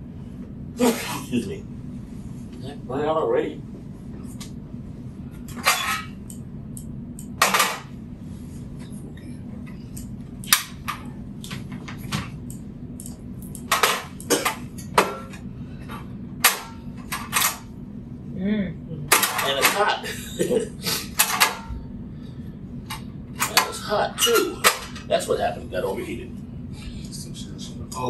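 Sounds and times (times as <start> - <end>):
stove igniter snapping: 10.4 - 11.0.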